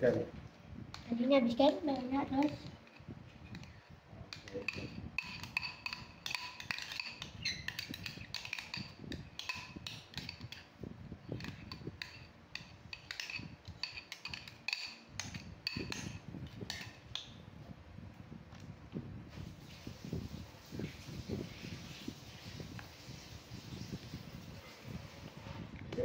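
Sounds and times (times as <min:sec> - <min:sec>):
metal spoon scraping ceramic bowl: 0:00.9 - 0:17.3.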